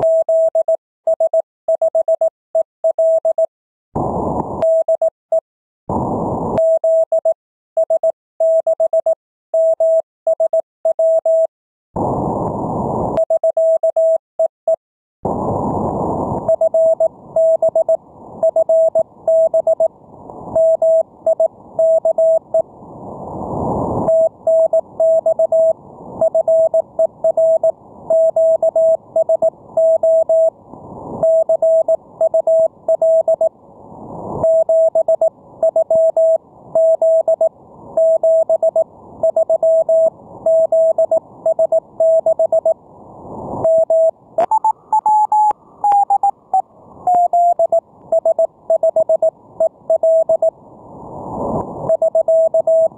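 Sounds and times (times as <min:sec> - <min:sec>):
morse code tone: 0:20.6 - 0:22.6, 0:24.1 - 0:30.5, 0:31.2 - 0:33.5, 0:34.4 - 0:42.8, 0:43.6 - 0:50.5, 0:51.9 - 0:52.9.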